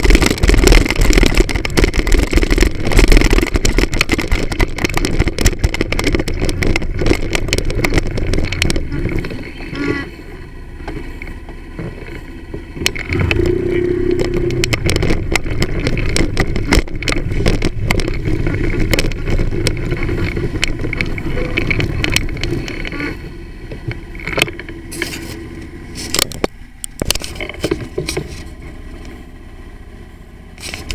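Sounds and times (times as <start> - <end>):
knocks from bumpy road: 0.0 - 10.0, 10.8 - 24.7
moped engine running: 0.0 - 30.9
wind and road rumble: 0.0 - 30.9.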